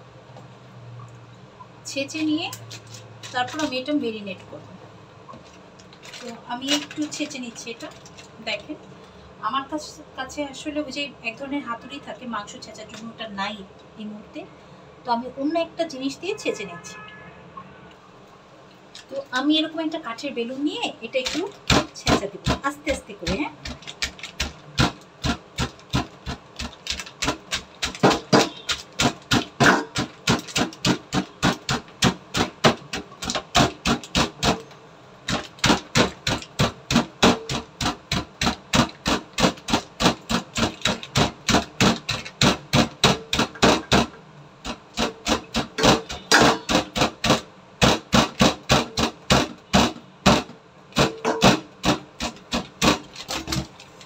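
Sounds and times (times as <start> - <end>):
rolling pin thumping meat: 21.2 - 53.8.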